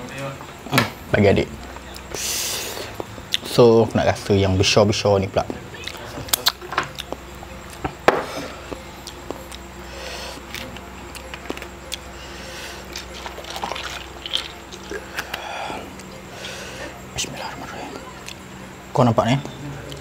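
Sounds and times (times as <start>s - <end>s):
mouth smacking: 5.4s - 18.4s
drink pouring over ice: 13.2s - 14.5s.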